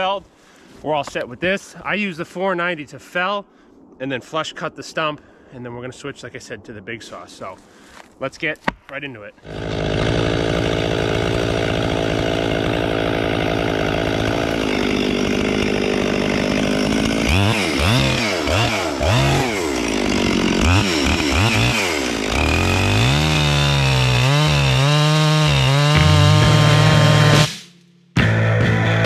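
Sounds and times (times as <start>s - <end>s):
chainsaw idling and revving: 9.4s - 27.5s
chainsaw cutting a log: 9.4s - 27.6s.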